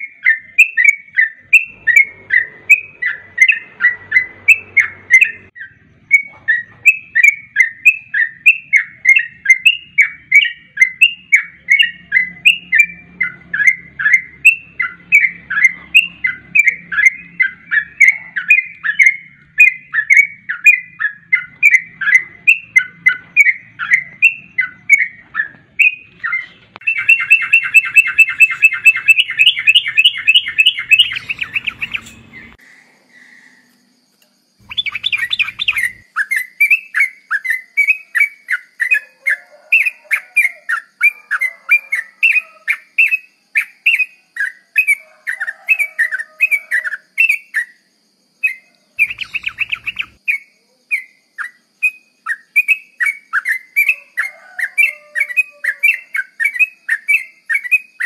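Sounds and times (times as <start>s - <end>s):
bird chattering trill: 0.0s - 32.6s, 34.6s - 47.8s, 48.5s - 51.6s
bird bubbling whistled notes: 26.8s - 32.6s, 34.6s - 36.8s, 49.0s - 50.2s.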